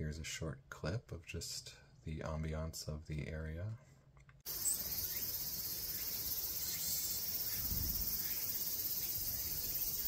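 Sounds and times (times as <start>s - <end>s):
cicadas chorus: 4.5s - 10.0s.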